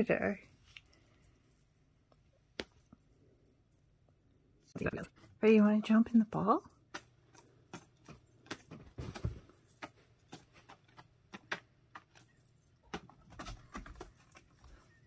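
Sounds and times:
cat toy jingling and rattling: 4.9 - 15.0.

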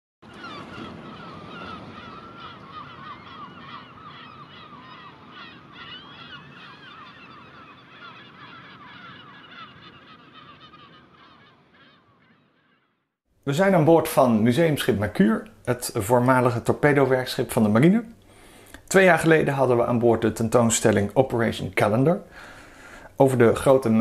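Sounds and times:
flock of birds honking: 0.3 - 12.9.

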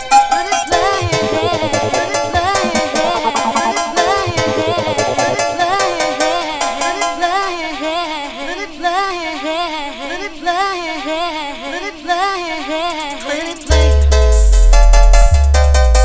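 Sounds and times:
rave music: 0.8 - 7.0.

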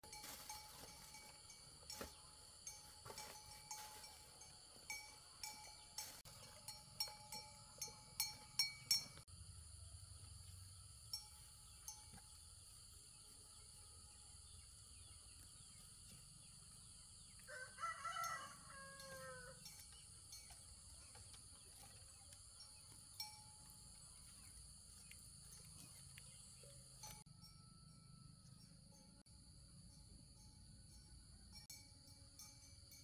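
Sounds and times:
rooster crowing: 17.4 - 19.7.

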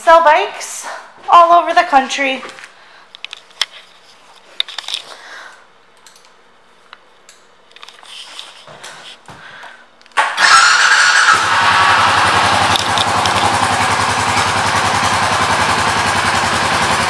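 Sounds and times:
faint clicks and handling noises: 2.4 - 10.2
starter cranking: 10.2 - 17.0
motorcycle engine running: 10.4 - 17.0.

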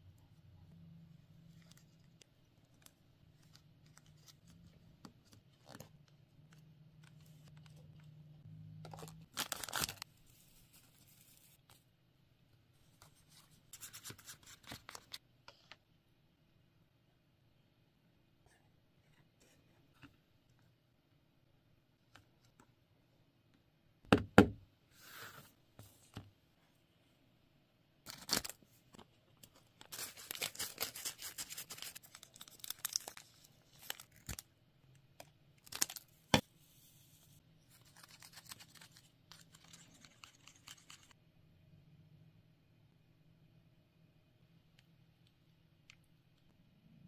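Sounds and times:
plastic packet crinkling and tearing: 8.9 - 10.1, 29.8 - 34.5.

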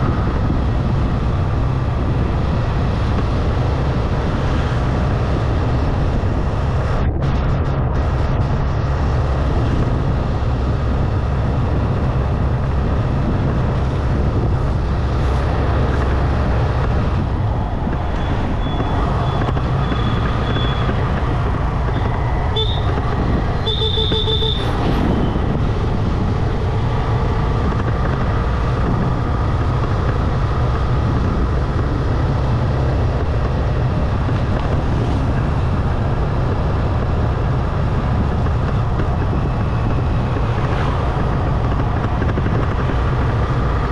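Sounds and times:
wind and road noise: 0.0 - 43.9
vehicle horn tooting: 22.5 - 23.0, 23.6 - 24.8.

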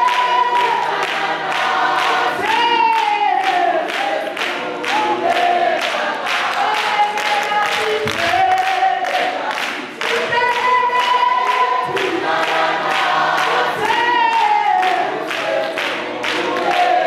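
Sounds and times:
woman singing through microphone: 0.0 - 1.2, 2.0 - 4.1, 6.5 - 12.6, 13.4 - 16.9
congregation singing gospel song: 0.0 - 17.0
rhythmic hand-clapping: 0.0 - 17.0.

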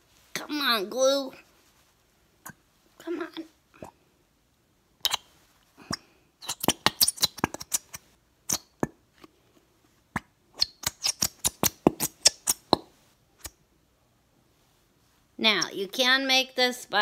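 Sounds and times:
glue bottle squelching pops: 5.9 - 9.0, 10.1 - 13.5.

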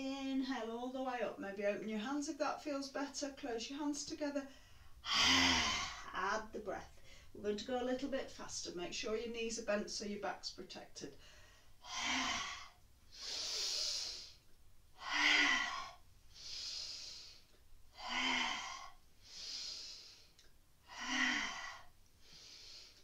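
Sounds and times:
woman exhaling forceful ha: 5.0 - 6.1, 11.8 - 14.3, 15.0 - 17.2, 20.9 - 21.9
breath in: 11.2 - 14.4, 15.0 - 23.0.

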